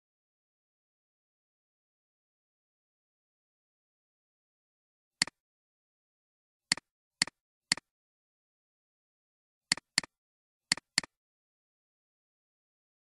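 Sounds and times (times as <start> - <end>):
computer mouse clicks: 6.7 - 7.9, 9.7 - 11.2.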